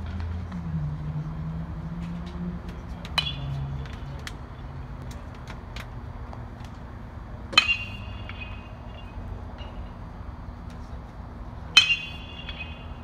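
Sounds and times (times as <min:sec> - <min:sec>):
baseball bat hitting ball: 0:02.7 - 0:06.8, 0:07.5 - 0:10.2, 0:11.8 - 0:13.0.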